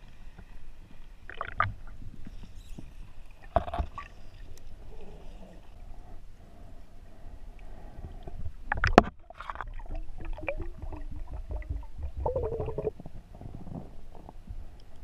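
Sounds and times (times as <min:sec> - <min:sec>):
air bubbles gurgling underwater: 0:08.8 - 0:13.0.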